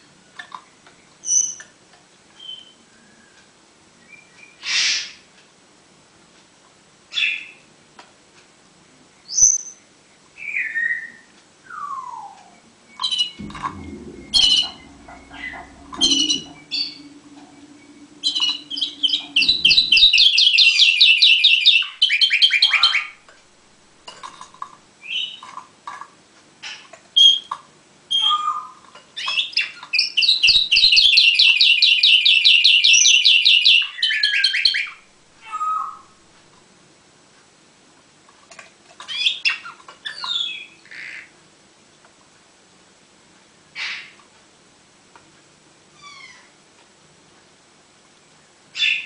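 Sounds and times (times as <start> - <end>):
fast rolling trills: 13.4 - 21.3.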